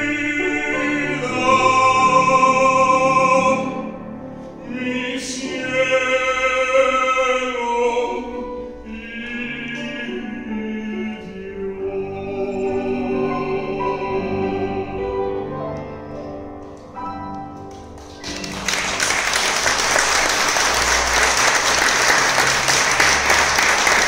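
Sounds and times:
music: 0:00.0 - 0:24.0
audience applause: 0:17.6 - 0:24.0.

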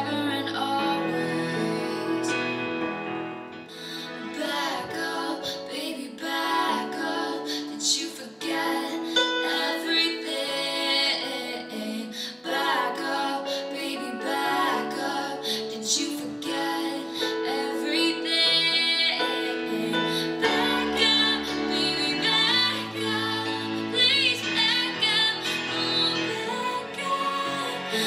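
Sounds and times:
woman singing: 0:00.0 - 0:02.6, 0:03.7 - 0:28.0
instrumental backing music: 0:00.0 - 0:05.8.

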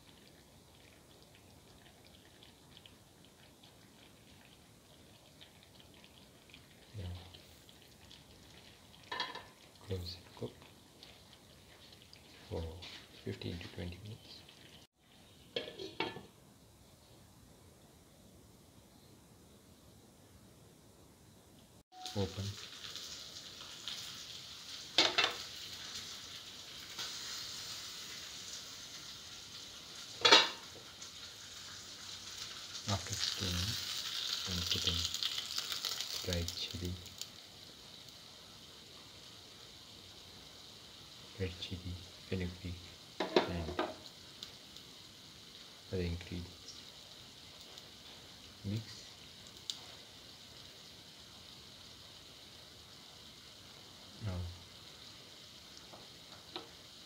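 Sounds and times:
curry bubbling and sizzling: 0:00.0 - 0:16.4, 0:21.9 - 0:57.0
gravy simmering with pops: 0:00.0 - 0:16.4, 0:21.8 - 0:57.0.

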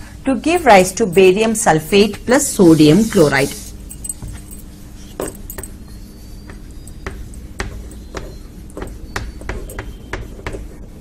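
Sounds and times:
faint steady hum: 0:00.0 - 0:11.0
chalk tapping on chalkboard: 0:06.4 - 0:10.8.

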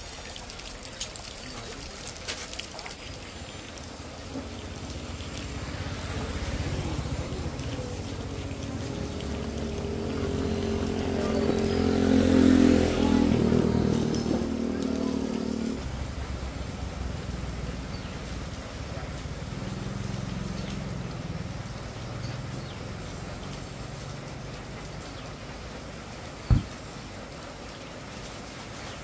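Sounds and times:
vehicle engine passing: 0:04.0 - 0:25.8.

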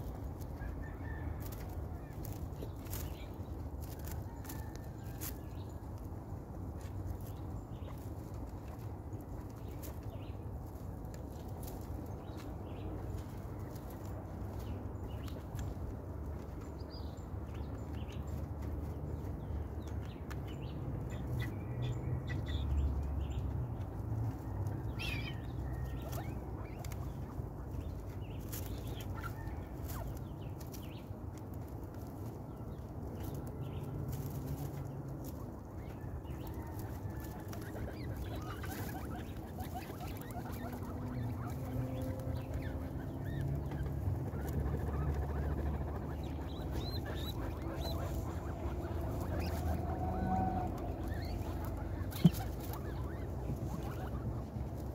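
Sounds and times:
small clicks and crackles of eating: 0:00.0 - 0:17.0, 0:23.4 - 0:49.8
guinea pigs rustling through hay: 0:00.0 - 0:21.6, 0:22.2 - 0:54.9
faint guinea pig calls: 0:00.0 - 0:54.9.

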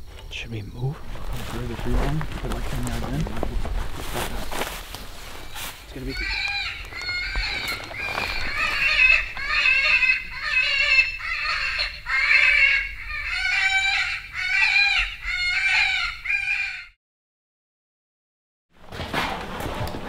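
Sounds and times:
electronic prey distress squealing: 0:05.9 - 0:16.8.

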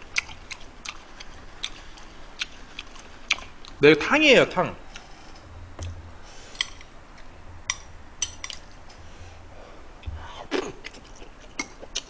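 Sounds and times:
soft chewing: 0:00.0 - 0:03.8, 0:05.8 - 0:09.0, 0:10.0 - 0:12.0
person breathing: 0:06.2 - 0:06.8, 0:08.9 - 0:10.6.

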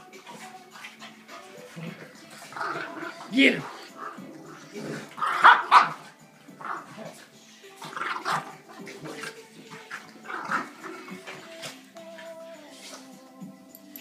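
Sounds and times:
dogs growling: 0:00.0 - 0:13.1
dogs barking: 0:01.0 - 0:07.2.

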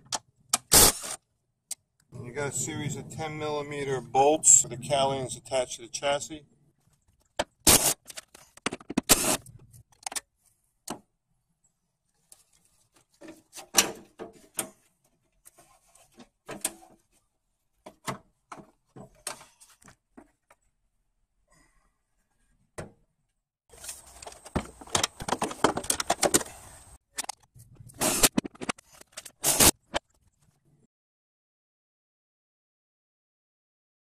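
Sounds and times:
plastic scraping and rattling: 0:06.8 - 0:10.2, 0:23.7 - 0:30.6
plastic clicks and knocks: 0:07.3 - 0:09.1, 0:24.2 - 0:26.5.

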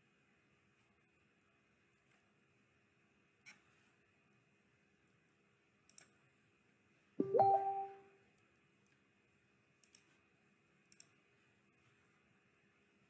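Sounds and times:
computer mouse clicking: 0:05.8 - 0:06.2, 0:09.8 - 0:10.2, 0:10.9 - 0:11.2
electronic alert chime: 0:07.2 - 0:08.0.

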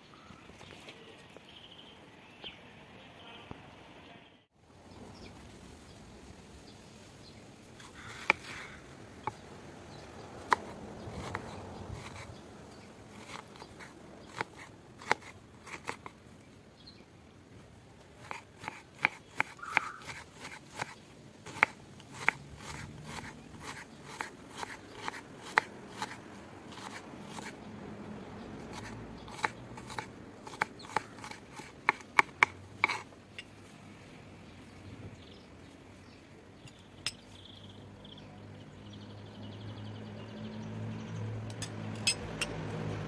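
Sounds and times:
knife chopping on wooden board: 0:08.1 - 0:08.6, 0:10.4 - 0:12.3, 0:13.2 - 0:16.1, 0:18.2 - 0:27.5, 0:28.7 - 0:33.0.

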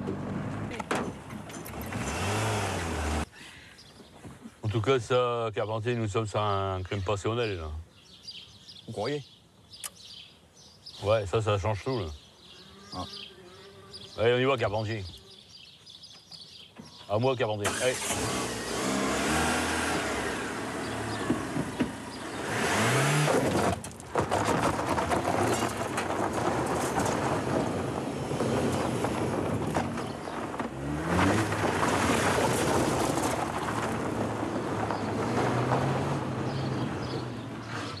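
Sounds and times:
car engine revving: 0:01.9 - 0:03.3, 0:17.7 - 0:23.8, 0:30.0 - 0:38.0
tyres skidding on gravel: 0:17.2 - 0:38.0.

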